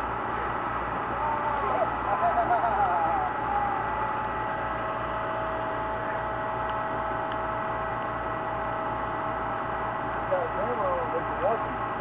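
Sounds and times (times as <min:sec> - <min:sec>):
mechanical hum with whining tones: 0:00.0 - 0:12.0.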